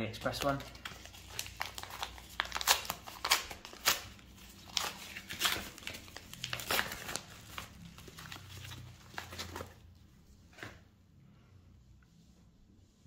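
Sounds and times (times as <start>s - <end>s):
padded envelope crinkling: 0.2s - 9.8s.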